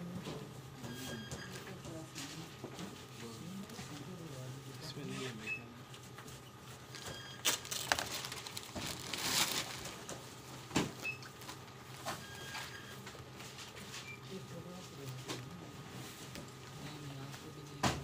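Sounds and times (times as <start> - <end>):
plastic wrapping crinkling: 7.4 - 10.2.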